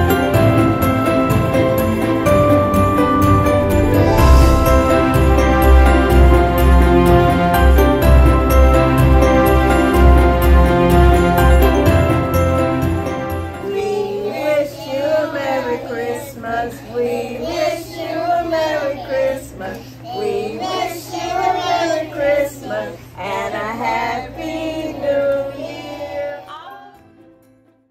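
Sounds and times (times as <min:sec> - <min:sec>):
children singing: 0:13.6 - 0:27.0
women singing: 0:13.6 - 0:27.1.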